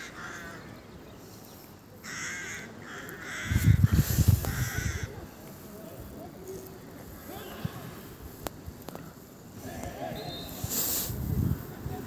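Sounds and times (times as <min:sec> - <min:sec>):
crows cawing: 0:00.0 - 0:00.7, 0:02.0 - 0:05.2.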